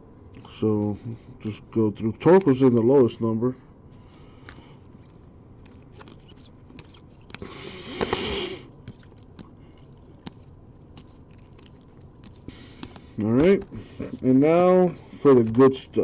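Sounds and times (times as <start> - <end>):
cards flipped through by hand: 4.0 - 14.5, 15.3 - 15.8.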